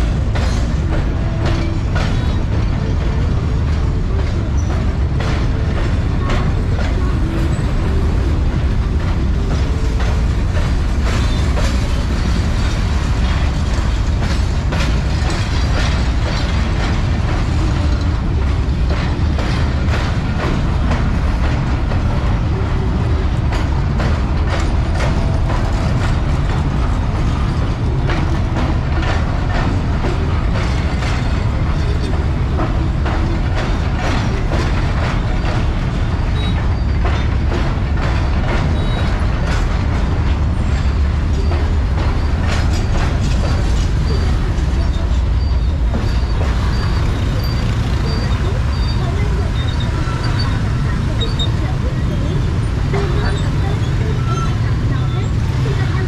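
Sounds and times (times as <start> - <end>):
freight wagons clanking: 0.0 - 56.0
train wheels rumbling on rails: 0.0 - 56.0.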